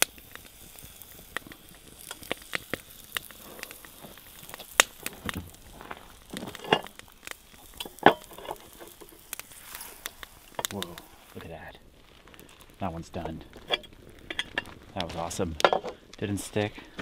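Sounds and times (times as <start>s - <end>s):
batter sizzling on waffle iron: 0.0s - 17.0s
pops and crackles: 0.0s - 17.0s.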